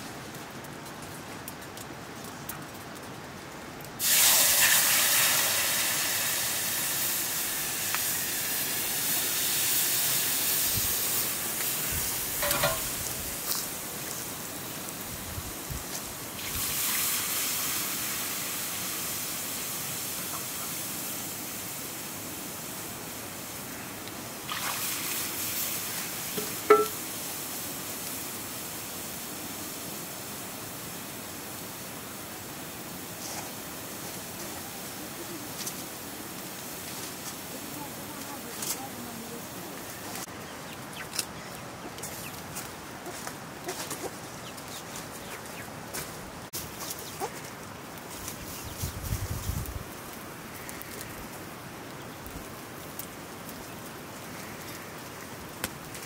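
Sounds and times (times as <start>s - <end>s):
water hissing in a hot wok: 4.0s - 40.3s.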